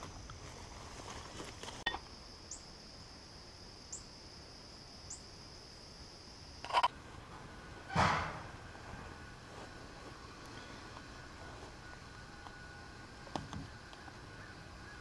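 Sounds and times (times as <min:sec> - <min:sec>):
footsteps in leaf litter: 0:00.0 - 0:01.9, 0:08.8 - 0:12.2
insects droning: 0:00.0 - 0:15.0.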